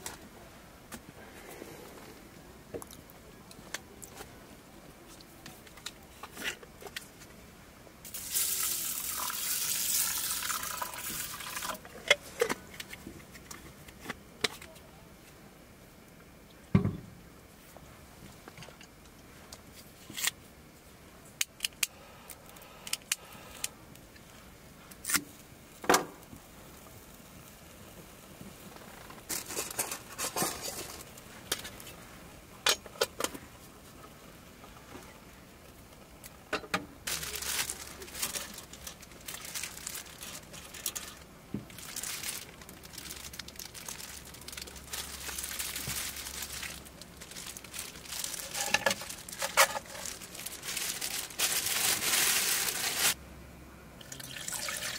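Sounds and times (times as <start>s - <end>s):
plastic wrapper rustling: 28.7s - 31.9s, 37.0s - 53.2s.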